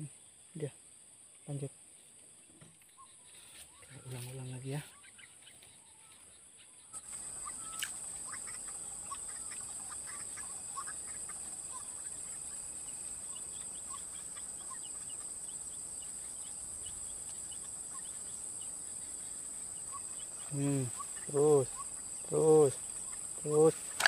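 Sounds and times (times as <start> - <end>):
high-pitched insect drone: 7.0 - 24.0.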